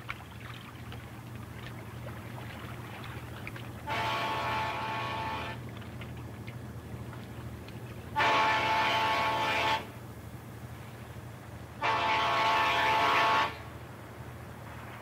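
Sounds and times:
low steady hum: 0:00.0 - 0:15.0
air horn blasts: 0:03.8 - 0:05.6, 0:08.2 - 0:10.0, 0:11.8 - 0:13.7.

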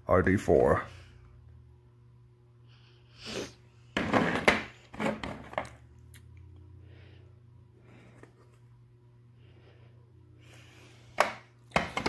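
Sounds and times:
plastic clattering and scraping: 0:04.0 - 0:05.8, 0:11.2 - 0:12.0.

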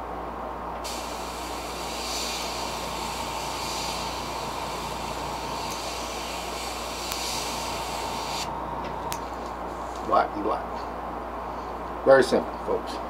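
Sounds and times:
airbrush air hiss: 0:00.8 - 0:08.7.

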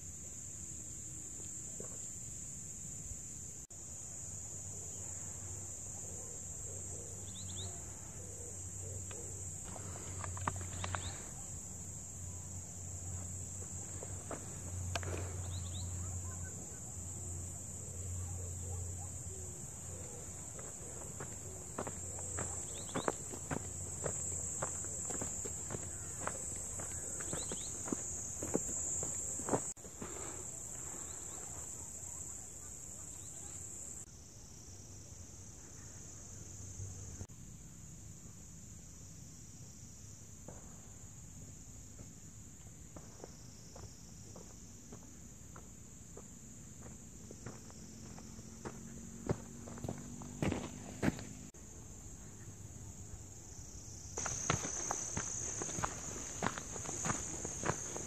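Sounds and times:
insects chirping in grass: 0:00.0 - 0:58.0
footsteps and clicks: 0:09.1 - 0:11.2.

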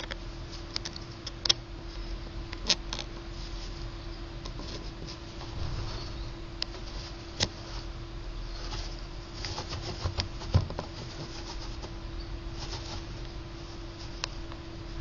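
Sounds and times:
gerbil scratching and gnawing: 0:02.6 - 0:14.6.

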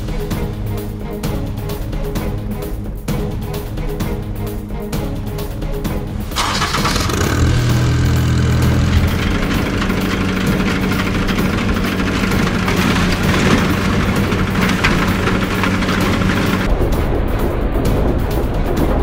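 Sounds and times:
tractor engine starting and running: 0:06.2 - 0:16.8.

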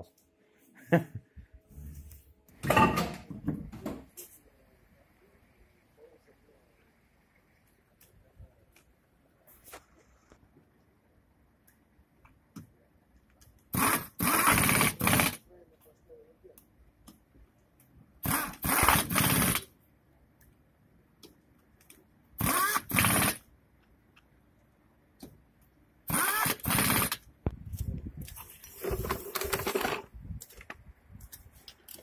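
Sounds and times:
pneumatic impact wrench bursts: 0:13.7 - 0:15.4, 0:18.2 - 0:19.7, 0:22.4 - 0:23.5, 0:26.1 - 0:27.3.

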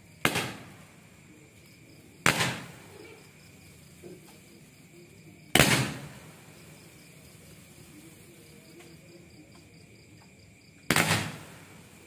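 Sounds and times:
firework shots banging: 0:00.2 - 0:01.0, 0:02.2 - 0:03.3, 0:05.5 - 0:06.6, 0:10.9 - 0:12.0.

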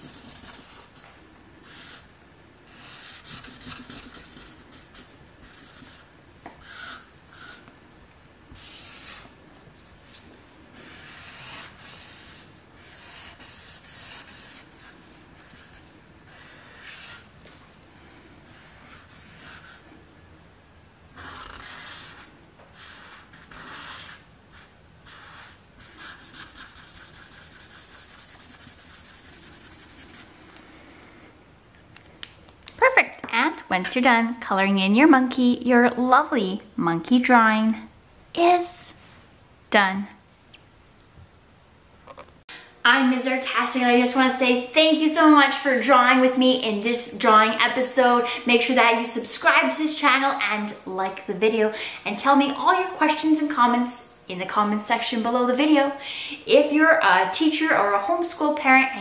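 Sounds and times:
marker scratching on paper: 0:00.0 - 0:02.1, 0:02.7 - 0:07.7, 0:08.5 - 0:09.3, 0:10.8 - 0:17.3, 0:18.4 - 0:19.8, 0:21.2 - 0:30.3.

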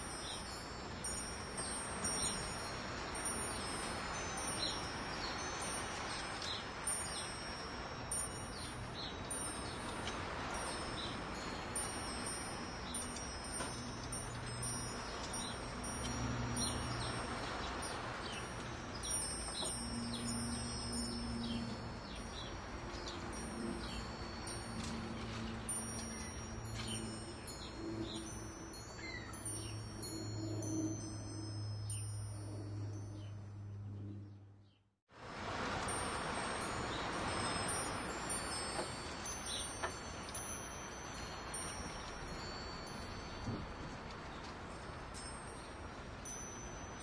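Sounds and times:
wind chimes ringing: 0:00.0 - 0:34.4, 0:35.2 - 0:47.0
low humming tones: 0:08.3 - 0:34.8
bird chirps: 0:29.0 - 0:31.2.

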